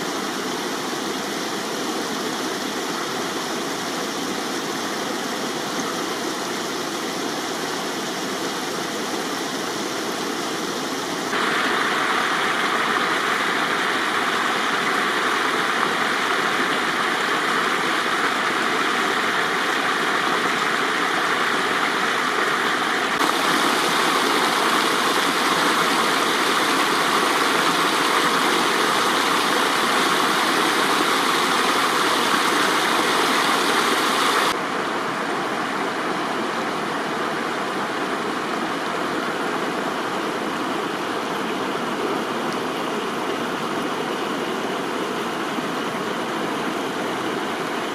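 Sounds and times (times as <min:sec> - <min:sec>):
stream water rushing and splashing: 0:00.0 - 0:47.9.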